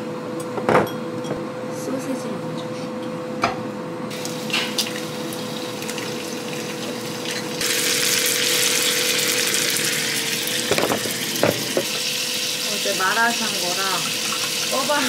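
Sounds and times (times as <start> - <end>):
food sizzling in a frying pan: 4.1 - 15.0.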